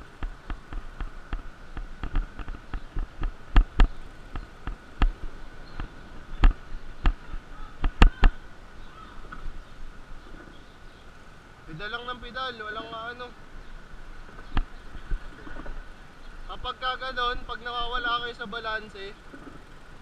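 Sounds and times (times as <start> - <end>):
bike rattling over bumps: 0.0 - 8.4
faint steady high hum: 0.0 - 20.0.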